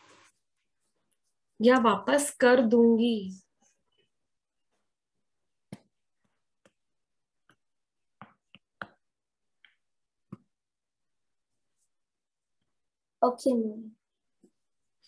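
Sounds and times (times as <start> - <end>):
fingertip tapping a touchscreen: 5.6 - 10.6.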